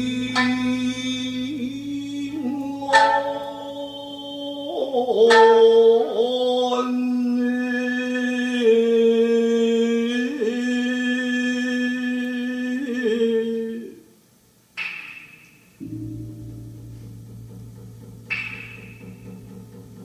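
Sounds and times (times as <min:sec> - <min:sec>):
person singing long notes: 0:00.0 - 0:14.1.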